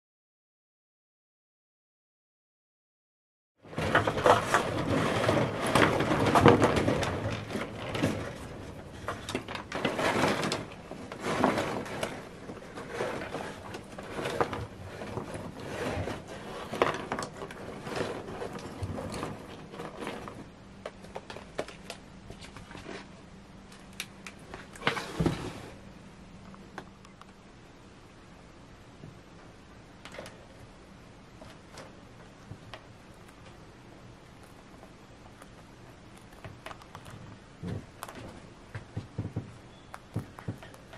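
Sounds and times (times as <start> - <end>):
wooden sticks clattering: 3.7 - 23.1.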